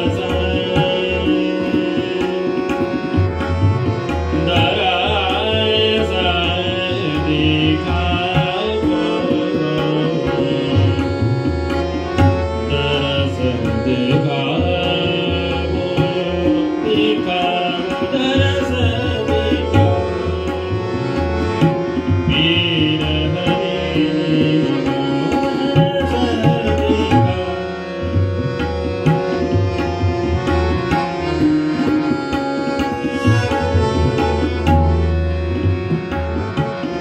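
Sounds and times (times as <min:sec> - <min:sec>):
man singing classical vocals: 0:00.0 - 0:03.1, 0:04.1 - 0:11.4, 0:12.2 - 0:20.5, 0:21.7 - 0:27.8
harmonium: 0:00.0 - 0:37.0
tabla drumming: 0:00.0 - 0:37.0.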